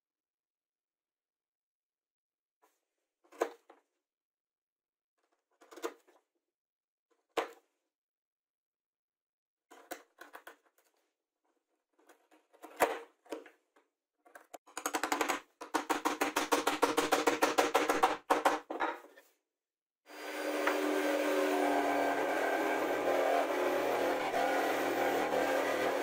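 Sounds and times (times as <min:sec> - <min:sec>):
steady machine drone: 0:20.1 - 0:26.0.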